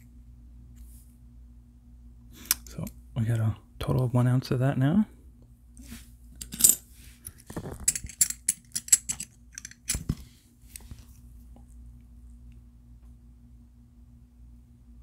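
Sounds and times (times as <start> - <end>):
metal coins clinking: 6.4 - 6.8, 7.8 - 9.9.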